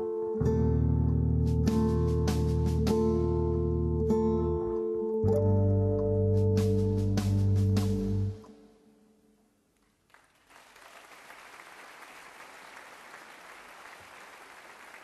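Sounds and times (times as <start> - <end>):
music low chord: 0.0 - 8.5
audience applause: 10.0 - 15.0.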